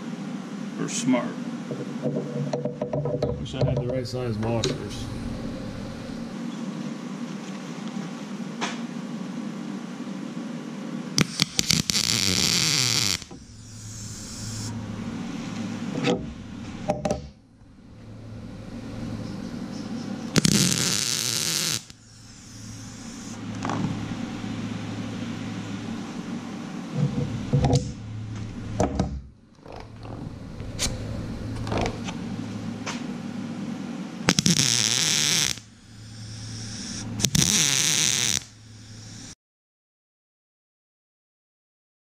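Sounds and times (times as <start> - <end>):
steady low hum: 0.0 - 39.4
arc welding: 11.2 - 14.8, 20.2 - 24.4, 34.3 - 39.4.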